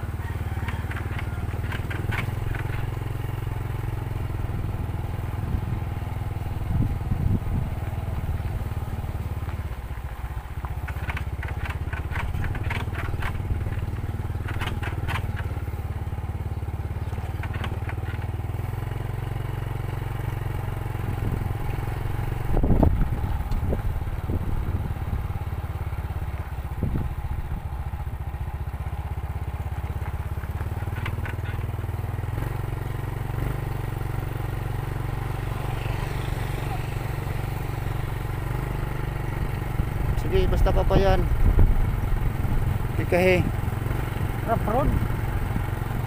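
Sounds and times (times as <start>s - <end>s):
motorcycle engine running: 0.0s - 46.0s
light rattling ticks: 0.6s - 3.4s, 9.1s - 19.5s, 20.3s - 24.2s, 29.4s - 32.6s.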